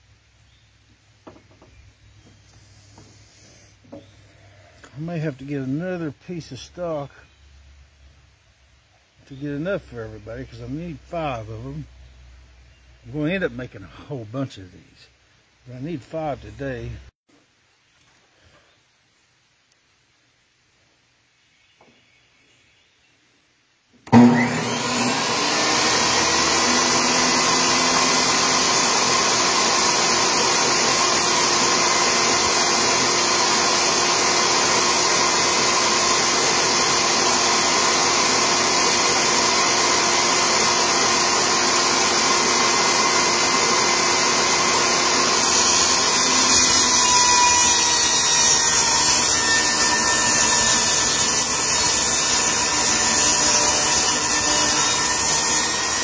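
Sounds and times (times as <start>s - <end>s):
saw ripping wood: 24.1s - 56.0s
table saw running: 24.1s - 56.0s.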